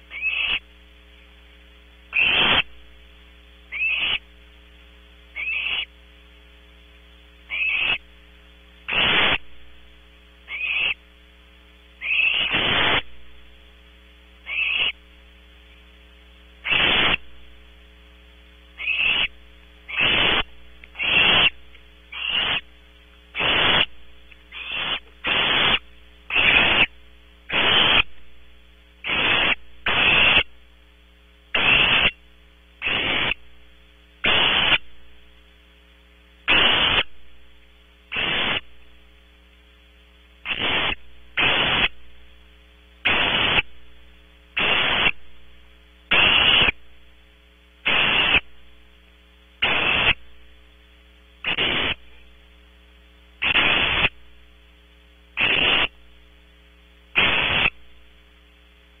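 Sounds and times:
steady electrical hum: 0.0s - 59.0s
owlets hissing: 2.1s - 2.7s, 8.9s - 9.4s, 12.0s - 13.1s, 14.5s - 15.0s, 16.6s - 17.3s, 18.8s - 22.7s, 23.4s - 23.9s, 24.5s - 26.9s, 27.5s - 28.1s, 29.0s - 30.5s, 31.6s - 32.2s, 32.8s - 33.4s, 34.2s - 34.8s, 36.5s - 37.1s, 38.1s - 38.7s, 40.5s - 42.0s, 43.1s - 43.7s, 44.6s - 45.2s, 46.1s - 46.8s, 47.9s - 48.4s, 49.6s - 50.2s, 51.5s - 52.0s, 53.4s - 54.2s, 55.4s - 56.0s, 57.2s - 57.8s.

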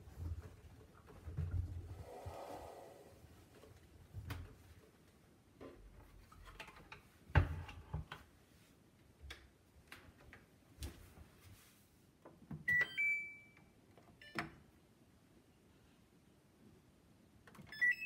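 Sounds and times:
control panel beeps: 17.7s - 18.0s.

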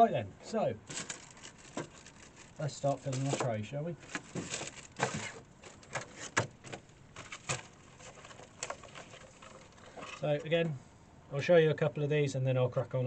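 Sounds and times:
plastic trays clicking and crackling: 0.9s - 10.3s.

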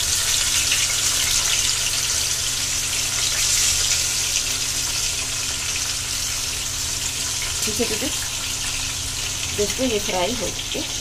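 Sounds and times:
fish deep-frying sizzle: 0.0s - 11.0s.

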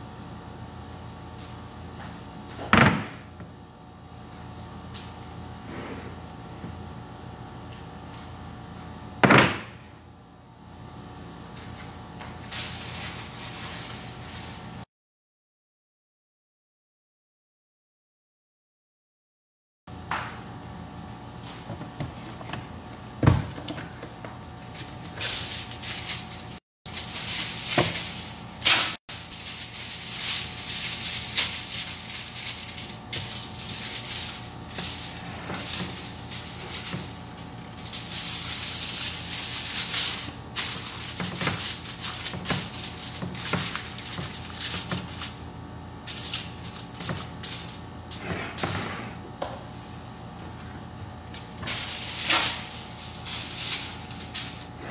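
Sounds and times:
aluminium foil crinkling: 12.4s - 14.8s, 23.9s - 48.2s, 51.3s - 54.8s.

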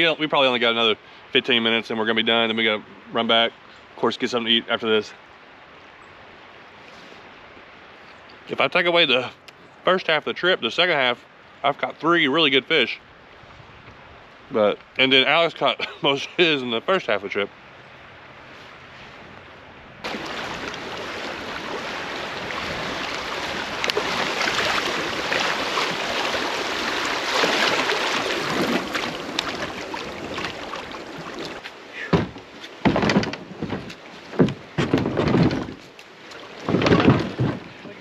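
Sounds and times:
kayak hull scraping on rocks: 20.0s - 38.0s
water rushing over riffle: 20.0s - 38.0s.

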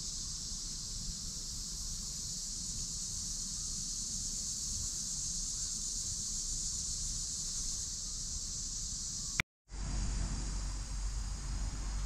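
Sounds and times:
insect chorus: 0.0s - 12.0s
low rumble: 9.7s - 12.0s.

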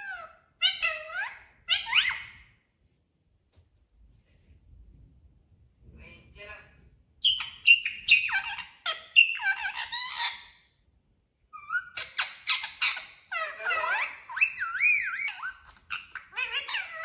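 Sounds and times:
parrot squawking calls: 0.0s - 2.5s, 7.2s - 10.6s, 11.5s - 17.0s.

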